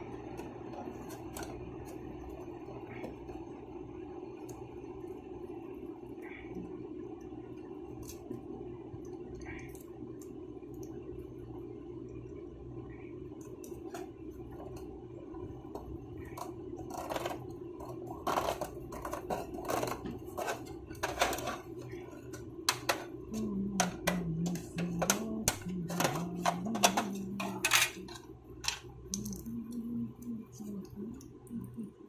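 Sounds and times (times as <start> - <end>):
steady low hum: 0.0 - 32.0
small hard objects clattering: 15.8 - 29.7.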